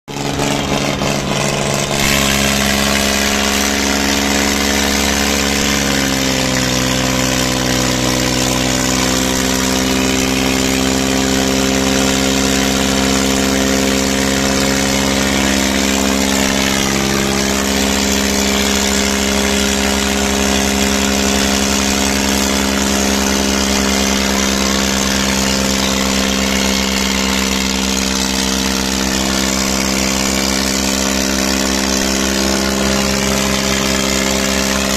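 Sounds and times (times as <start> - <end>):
diesel tractor engines running: 0.1 - 34.9.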